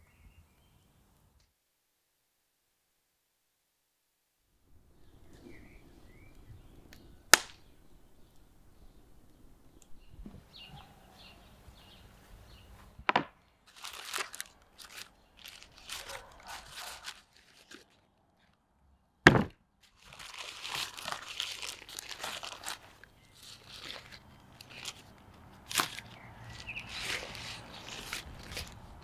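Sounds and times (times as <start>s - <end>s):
baking paper crinkling: 13.1s - 18.5s, 19.8s - 29.0s.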